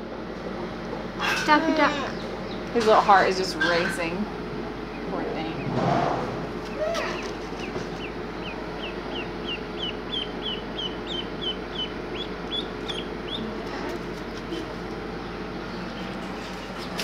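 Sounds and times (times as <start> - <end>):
duckling peeping: 3.4 - 4.2, 4.8 - 5.8, 6.6 - 17.0.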